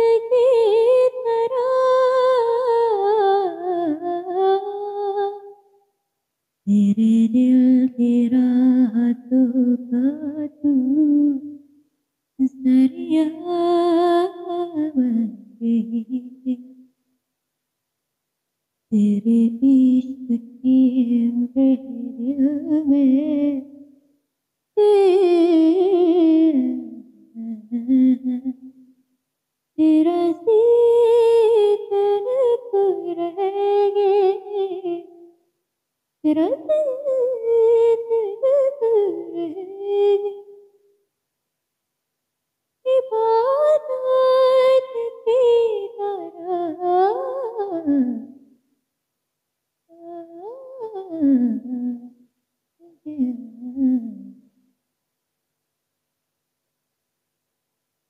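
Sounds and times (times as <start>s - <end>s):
woman singing with vibrato: 0.0s - 5.6s, 6.7s - 11.6s, 12.4s - 16.6s, 18.9s - 23.9s, 24.8s - 28.7s, 29.8s - 35.2s, 36.2s - 40.6s, 42.9s - 48.4s, 49.9s - 52.1s, 52.8s - 54.4s.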